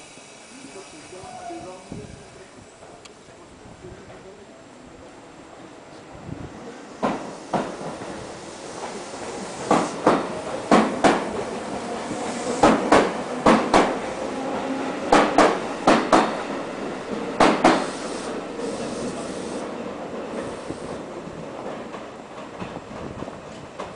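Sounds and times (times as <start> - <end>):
train running rumble: 5.9 - 23.9
train wheels knocking on rail joint: 7.0 - 8.2, 9.6 - 11.6, 12.4 - 14.0, 15.1 - 16.4, 17.3 - 18.0.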